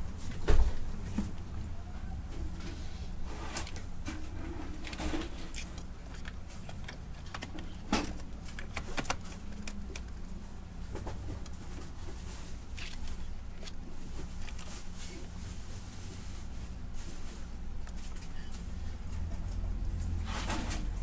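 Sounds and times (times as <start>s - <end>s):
steady low hum: 0.0s - 21.0s
plastic printer parts clicking: 3.6s - 10.4s.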